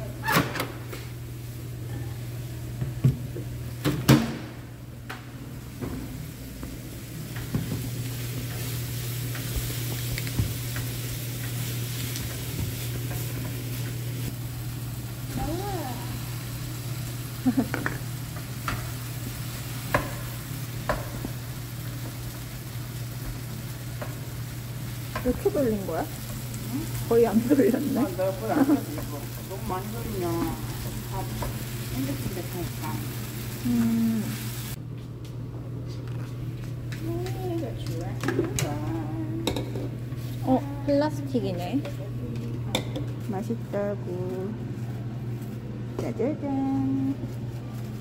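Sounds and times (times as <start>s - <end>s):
food sizzling in a frying pan: 5.6s - 34.8s.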